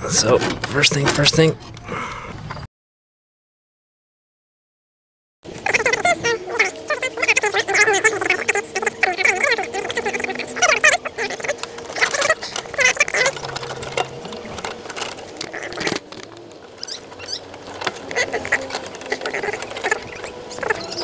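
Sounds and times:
metal parts clicking and scraping: 5.5 - 21.0.

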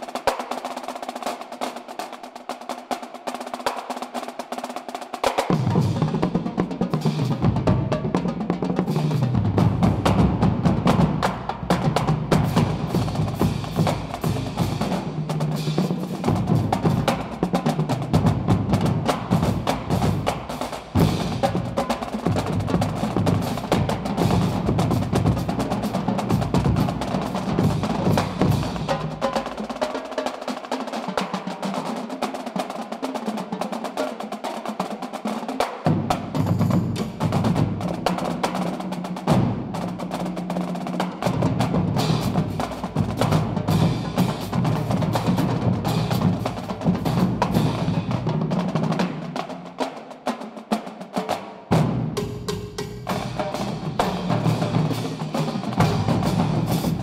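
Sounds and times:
cymbals: 0.0 - 50.0, 51.2 - 57.0
snare drums: 0.0 - 57.0
tenor drums: 0.0 - 57.0
bass drums: 9.2 - 29.2, 41.2 - 48.5.

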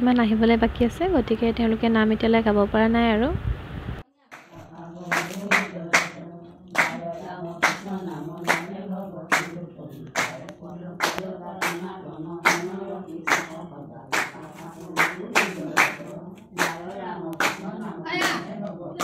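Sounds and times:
women chanting: 4.3 - 19.0
hand claps: 4.4 - 18.7.

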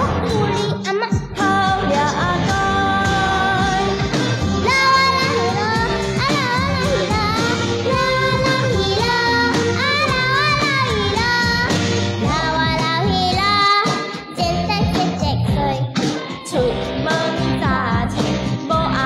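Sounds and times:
girl singing into microphone: 0.0 - 4.0, 4.6 - 19.0
woman singing along: 0.0 - 4.0
pop backing track: 0.0 - 19.0.

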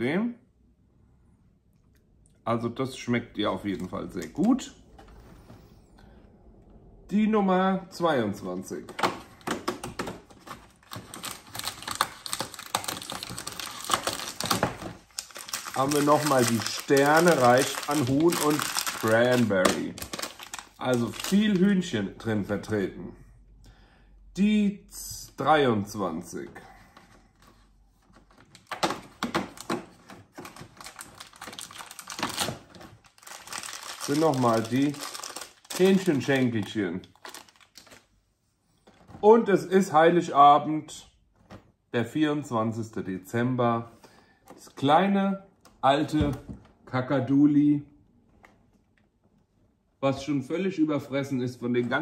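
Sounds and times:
plastic packet crackling: 9.4 - 21.9, 28.5 - 38.1.

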